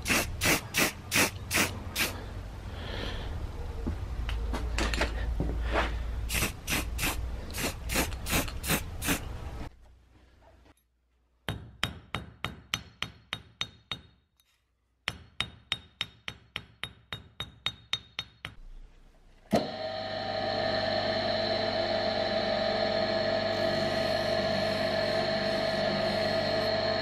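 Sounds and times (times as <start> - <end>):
bench motor humming and whining: 19.6 - 27.0.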